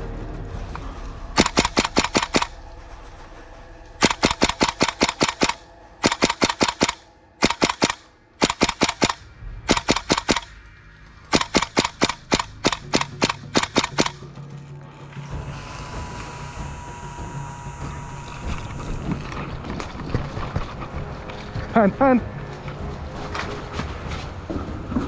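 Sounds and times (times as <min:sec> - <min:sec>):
airsoft rifle full-auto bursts: 0:01.4 - 0:02.5, 0:04.0 - 0:10.5, 0:11.3 - 0:14.2.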